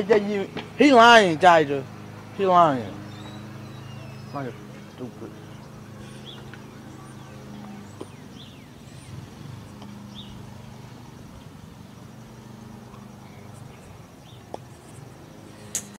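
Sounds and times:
steady low hum: 0.0s - 15.9s
bird chirps: 1.8s - 11.0s, 12.9s - 15.2s.

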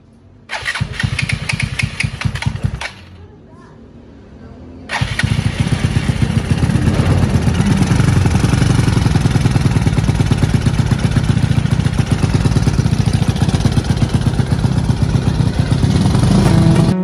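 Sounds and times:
motorcycle engine running: 0.5s - 3.1s, 4.9s - 17.0s.

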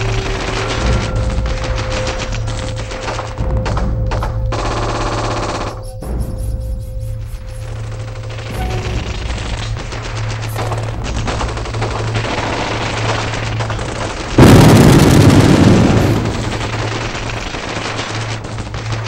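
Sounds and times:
machine-gun fire: 0.0s - 6.0s, 7.6s - 19.0s
low hum: 0.0s - 19.0s
loud explosion: 14.3s - 17.7s.

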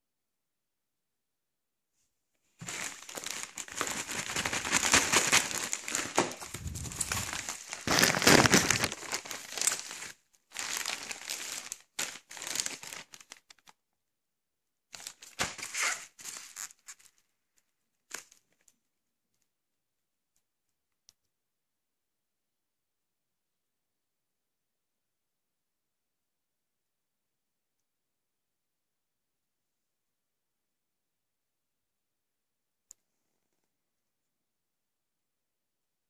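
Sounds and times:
plastic packaging crinkling: 2.6s - 13.7s.

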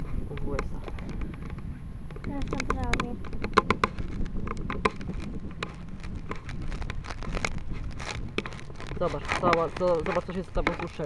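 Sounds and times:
low rumble: 0.0s - 11.0s
camera handling clicks and knocks: 0.4s - 7.6s.

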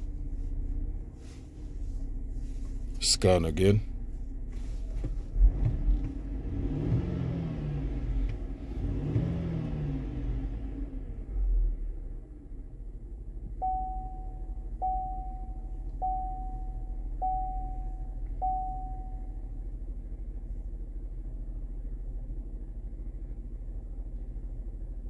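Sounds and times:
low vehicle hum: 0.0s - 25.0s
car warning chime: 13.6s - 19.6s.

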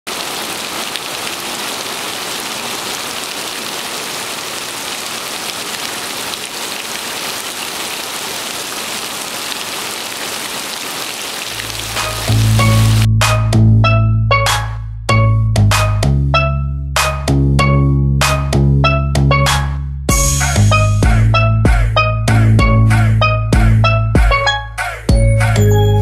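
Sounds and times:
heavy rain falling on water: 0.0s - 13.1s
music with deep bass: 11.9s - 26.0s.

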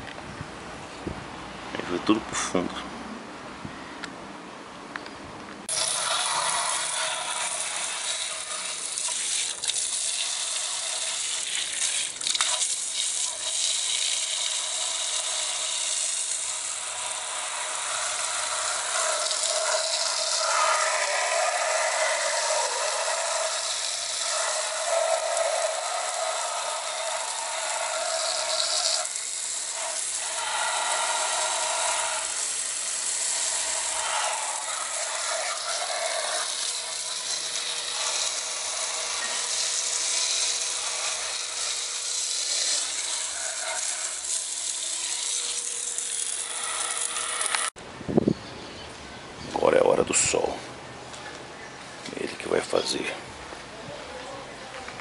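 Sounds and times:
hose water spraying on metal: 5.7s - 47.8s.

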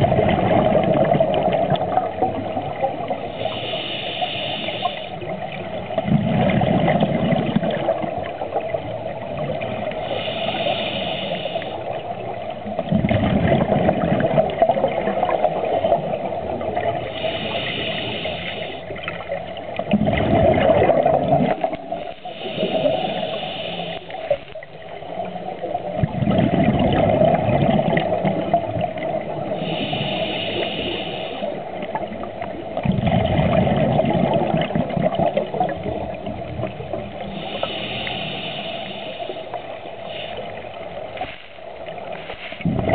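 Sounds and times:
bubbling exhale: 0.0s - 8.4s, 9.4s - 12.0s, 12.8s - 19.2s, 19.8s - 24.6s, 26.0s - 32.2s, 32.8s - 41.4s, 42.1s - 42.9s
regulator hissing inhale: 3.2s - 5.5s, 9.8s - 12.2s, 17.0s - 19.2s, 21.9s - 24.7s, 29.4s - 32.2s, 37.0s - 42.6s
steady hum: 35.8s - 42.9s.

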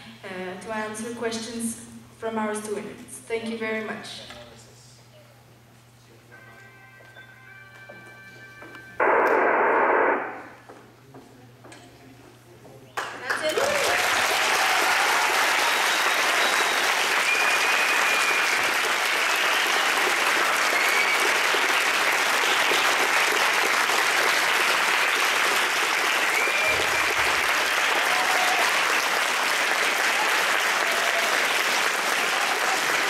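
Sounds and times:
audience applauding: 13.0s - 33.0s.

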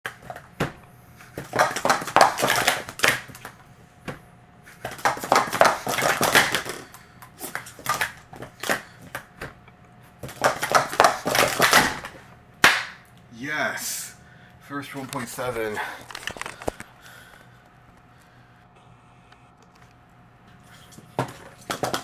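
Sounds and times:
plastic cups clattering: 4.9s - 8.9s.

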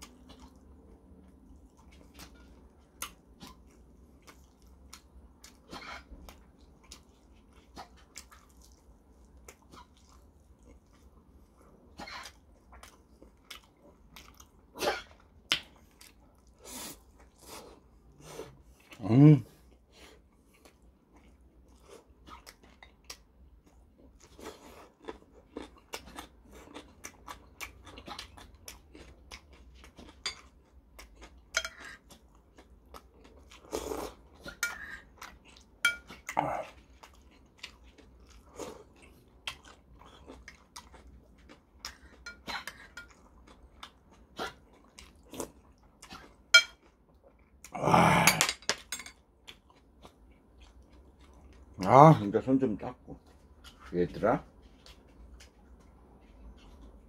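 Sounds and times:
wet chewing and slurping: 0.0s - 19.0s, 19.6s - 48.4s
metal spoon clinking on bowl: 35.8s - 36.1s.

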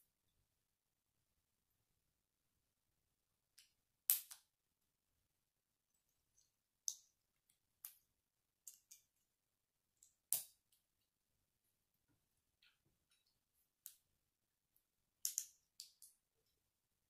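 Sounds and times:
plastic bricks clicking together: 15.2s - 16.2s.

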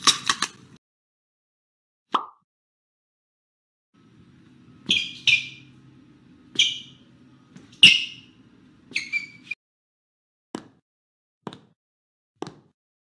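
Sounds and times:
shoes squeaking: 4.8s - 5.8s, 6.5s - 9.6s.

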